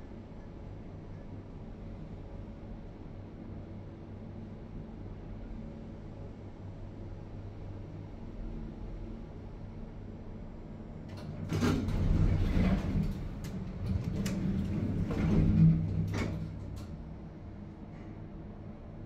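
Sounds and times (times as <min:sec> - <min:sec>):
steady low hum: 0:09.9 - 0:19.0
door mechanism clicks: 0:11.1 - 0:17.1
lift doors sliding: 0:11.1 - 0:17.6.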